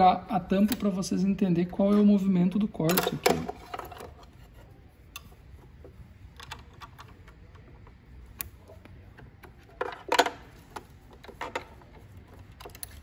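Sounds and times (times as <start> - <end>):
plastic and metal parts clicking: 6.3 - 13.0.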